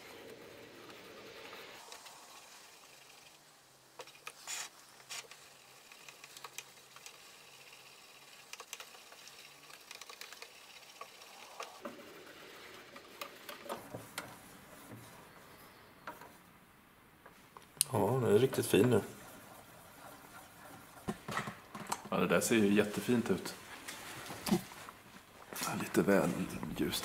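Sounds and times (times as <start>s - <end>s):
stick stirring paint in metal tin: 17.8s - 22.3s.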